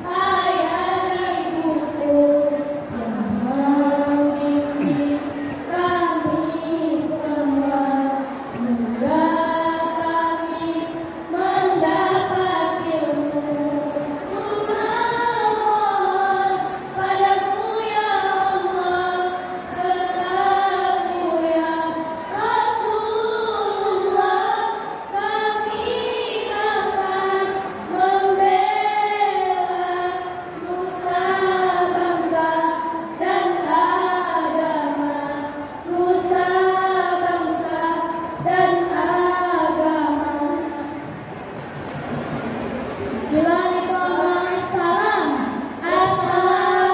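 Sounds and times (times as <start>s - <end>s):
girls singing together: 0.0s - 41.4s, 42.0s - 46.9s.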